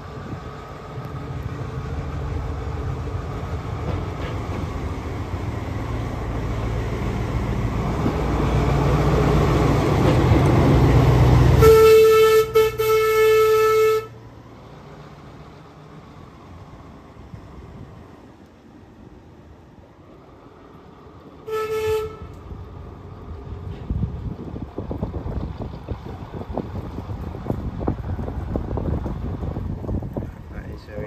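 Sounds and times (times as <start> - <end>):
diesel locomotive engine running: 0.0 - 31.0
locomotive horn: 11.5 - 14.2, 21.4 - 22.4.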